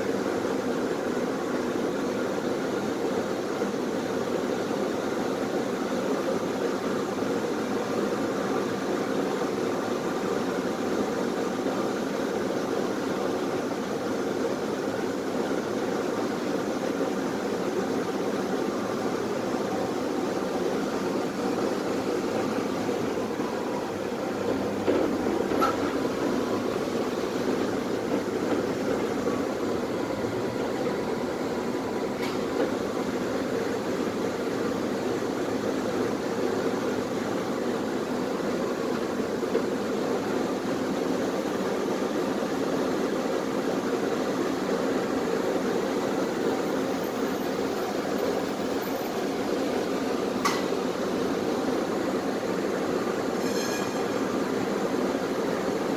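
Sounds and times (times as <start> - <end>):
tram interior hum and rumble: 0.0 - 55.9.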